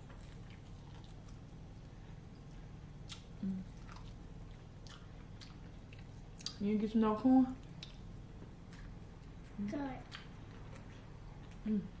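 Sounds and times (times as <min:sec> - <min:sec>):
chewing corn on the cob: 0:00.0 - 0:01.6, 0:03.0 - 0:06.6
steady low hum: 0:00.0 - 0:12.0
wet mouth clicks: 0:03.1 - 0:04.0.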